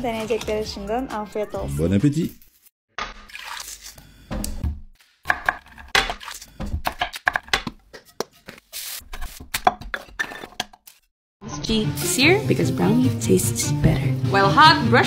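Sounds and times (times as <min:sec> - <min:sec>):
knife chopping on wooden board: 0:05.3 - 0:08.3.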